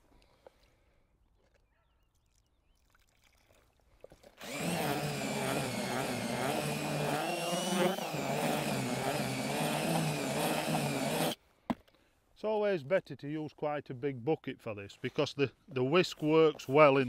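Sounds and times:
cordless drill motor whirring: 4.4s - 11.4s.

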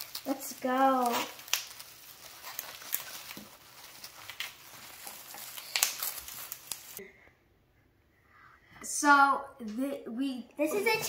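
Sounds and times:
plastic wrapping crinkling: 0.0s - 7.0s.

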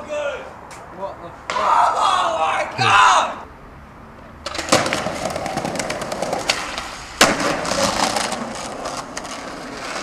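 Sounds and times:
skateboard wheels rolling on pavement: 0.0s - 10.0s
skateboard clacking on ground: 4.4s - 10.0s.

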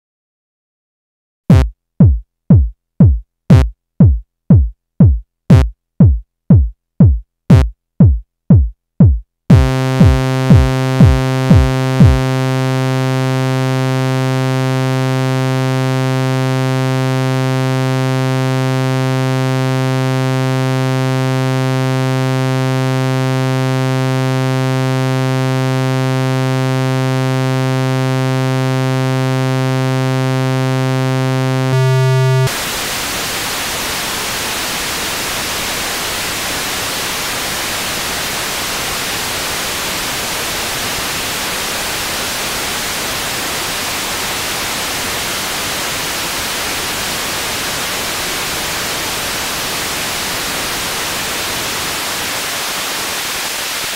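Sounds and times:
short drum-like synth blips: 1.5s - 12.2s
steady low synth tone: 9.5s - 14.1s, 31.4s - 32.5s.

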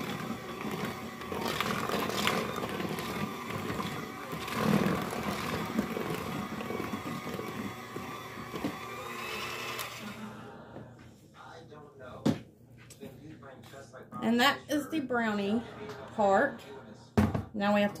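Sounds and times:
electric hand mixer running: 0.0s - 10.5s.

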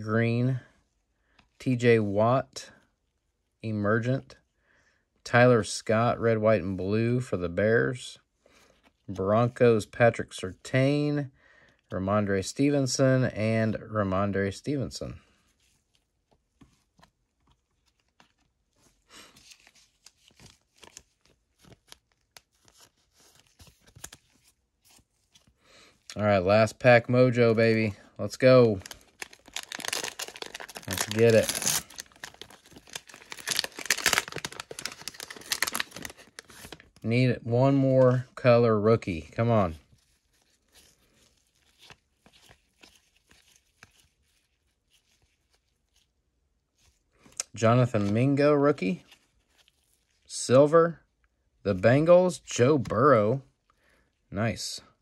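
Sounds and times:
thin plastic crinkling: 28.3s - 37.0s, 39.8s - 48.3s.

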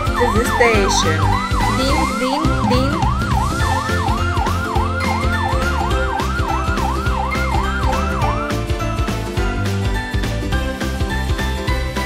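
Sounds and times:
electronic siren wailing: 0.0s - 8.5s
background music with steady beat: 0.0s - 12.0s.

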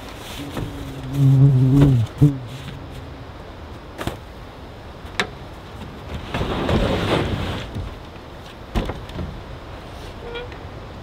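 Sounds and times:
rough sliding scrape: 6.1s - 7.8s.

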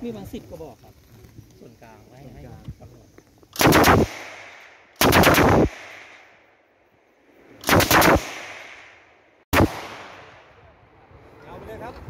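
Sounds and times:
machine gun bursts with echo: 3.6s - 6.2s, 7.6s - 8.9s, 9.5s - 10.3s.

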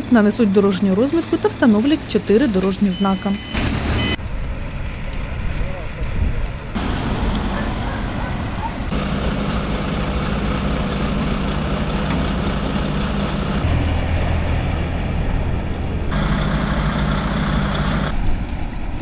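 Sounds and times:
diesel engine idling: 6.8s - 18.2s.

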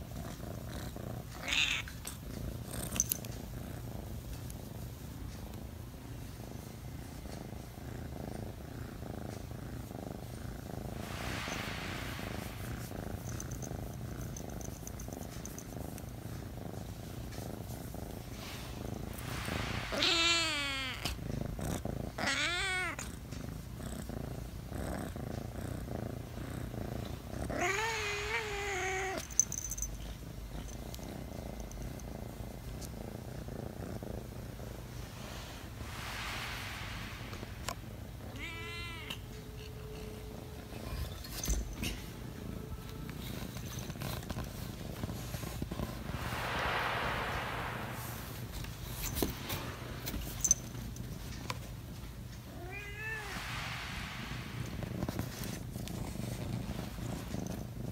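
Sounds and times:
cat purring: 0.0s - 52.6s, 53.2s - 57.9s
cat meowing: 38.4s - 39.3s.

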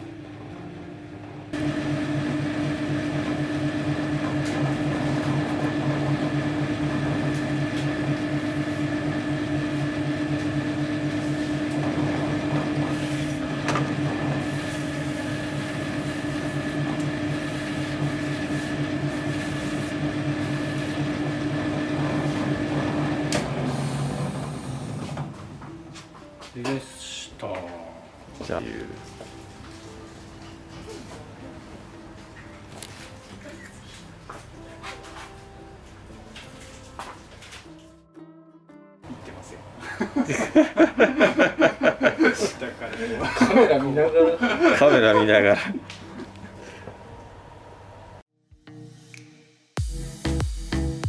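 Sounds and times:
machine motor humming: 0.0s - 25.8s.

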